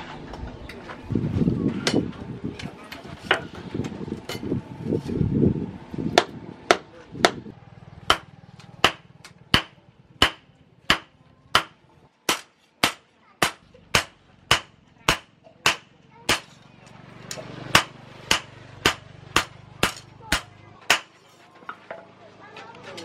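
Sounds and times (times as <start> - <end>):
hammer striking steel on anvil: 8.0 - 16.6, 17.3 - 21.2.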